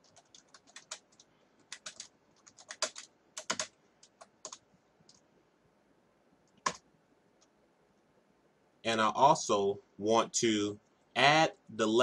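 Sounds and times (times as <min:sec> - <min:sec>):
computer keyboard typing: 0:00.0 - 0:05.3, 0:06.4 - 0:06.8.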